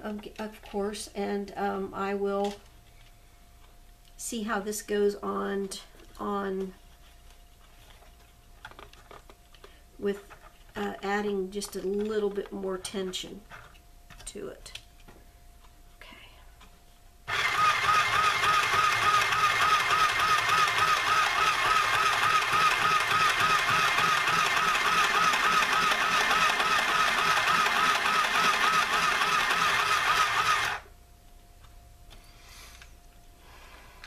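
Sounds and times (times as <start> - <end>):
sewing machine running: 17.3 - 30.9.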